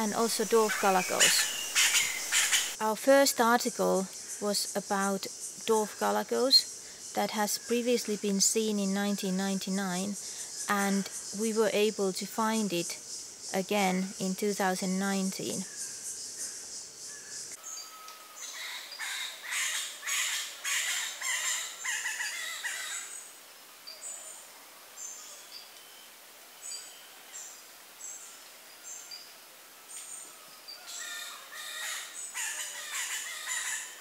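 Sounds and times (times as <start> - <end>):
galagos high chirps: 0.0 - 2.8.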